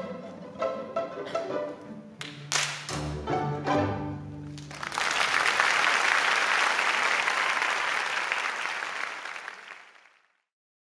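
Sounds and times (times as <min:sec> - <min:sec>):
audience applauding: 0:02.2 - 0:03.0, 0:04.4 - 0:10.5.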